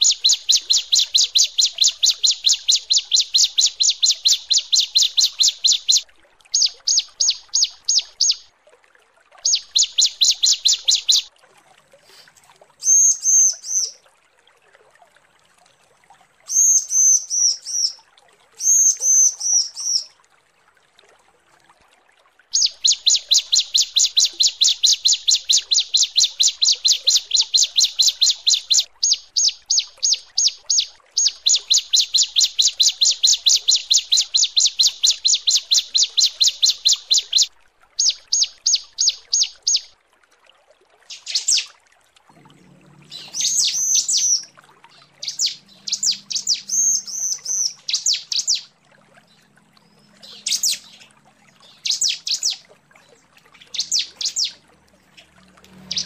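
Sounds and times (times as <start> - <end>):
bird calling high slurred notes: 0.0 - 8.5, 9.5 - 11.3, 12.8 - 14.0, 16.5 - 18.0, 18.6 - 20.1, 22.5 - 39.9, 41.1 - 41.7, 43.0 - 48.7, 49.8 - 52.6, 53.6 - 56.0
bird fast run of sharp notes: 55.8 - 56.0.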